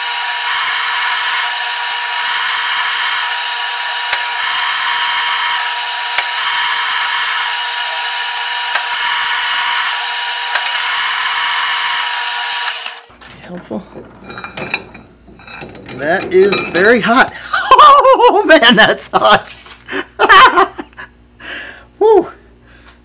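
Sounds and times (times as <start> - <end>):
drill bit boring into steel: 0.0 - 13.1.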